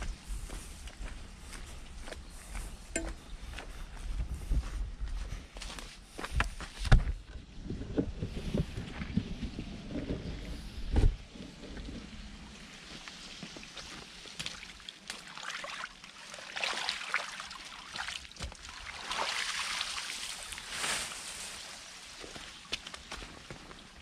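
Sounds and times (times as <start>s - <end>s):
water trickling and sloshing: 11.5s - 24.0s.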